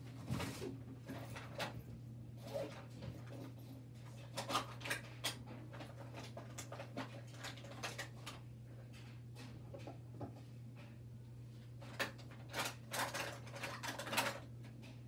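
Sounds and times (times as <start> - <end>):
faint clicks and knocks: 3.0 - 11.1.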